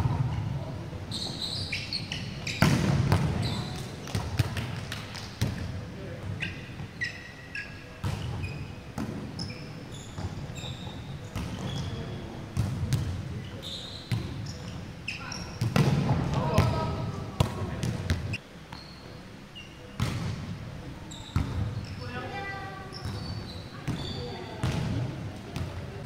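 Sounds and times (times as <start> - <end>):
sneakers squeaking on court: 1.1 - 4.8, 6.2 - 20.4, 21.0 - 22.2, 22.8 - 25.0
volleyball slaps and thuds: 2.6 - 5.6, 15.6 - 16.8.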